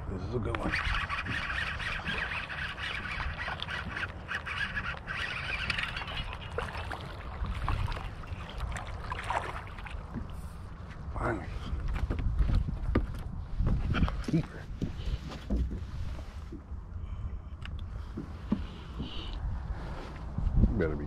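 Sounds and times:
wind rumbling on microphone: 0.0s - 21.0s
fishing reel cranking: 0.5s - 7.0s
fish splashing: 0.7s - 10.4s.

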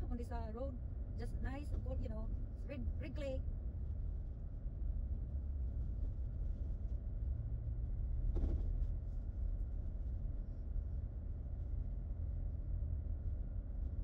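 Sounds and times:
car engine and tyres rumbling: 4.2s - 14.0s.

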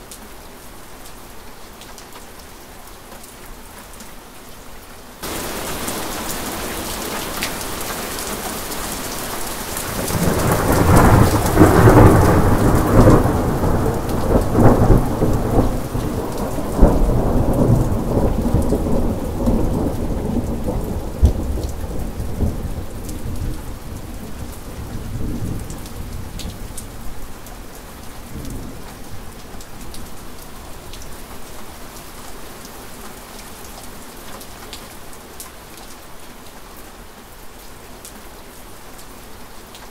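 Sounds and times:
steady rain: 0.0s - 39.9s
thunder rumbling: 5.2s - 7.9s, 9.8s - 26.6s.

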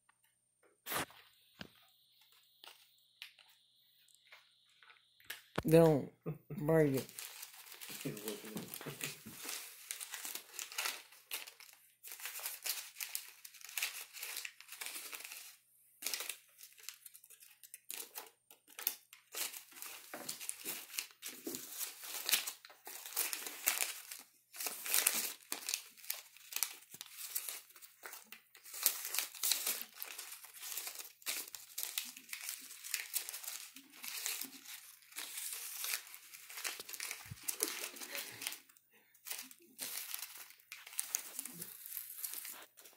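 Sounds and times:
paper bills crinkling: 6.6s - 42.9s.

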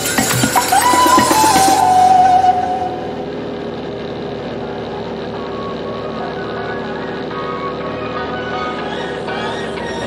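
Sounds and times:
background music with held tones: 0.0s - 3.3s, 7.3s - 10.0s.

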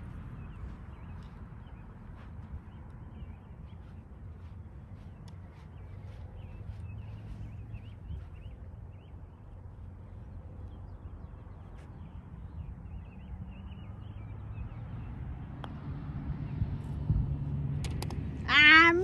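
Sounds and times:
wind rumbling on microphone: 0.0s - 19.0s
putter striking golf ball: 17.8s - 18.2s.

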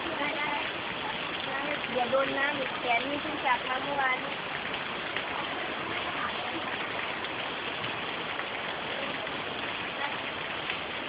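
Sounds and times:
heavy rain on plants: 0.0s - 11.0s.

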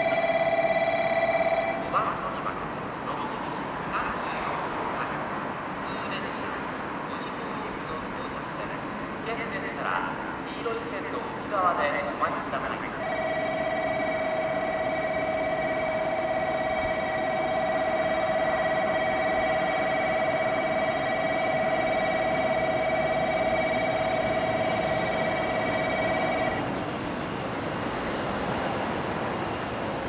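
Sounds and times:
electronic alarm tone: 0.0s - 1.8s, 13.0s - 26.7s
electric train pulling in: 0.0s - 5.8s, 12.9s - 30.0s.

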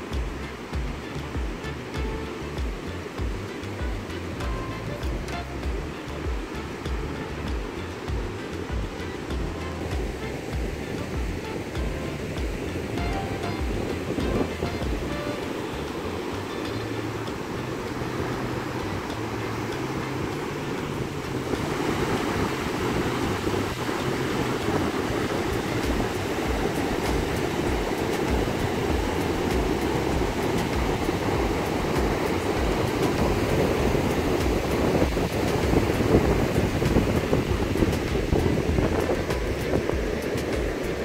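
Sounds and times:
surf breaking on beach: 0.0s - 41.0s
wind buffeting microphone: 0.0s - 41.0s.

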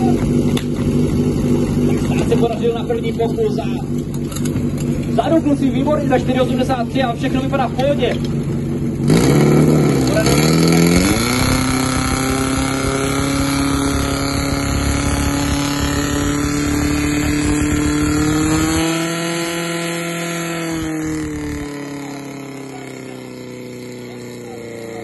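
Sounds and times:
pump engine running: 7.4s - 25.0s.

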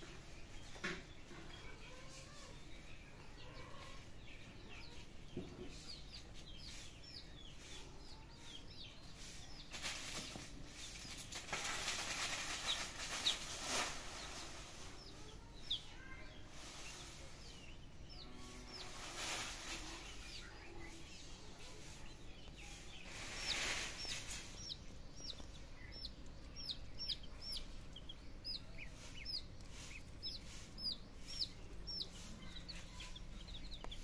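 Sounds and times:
small birds chirping: 0.0s - 34.0s
dry leaves rustling: 9.7s - 15.0s, 18.5s - 20.4s, 22.7s - 24.6s.

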